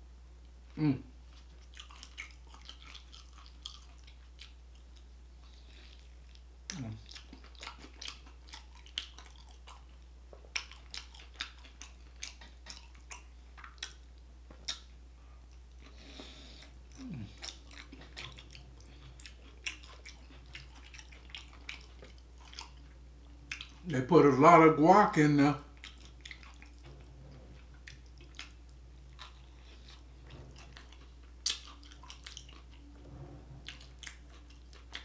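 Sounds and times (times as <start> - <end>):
man chewing food: 0.4 - 23.9, 25.6 - 35.0.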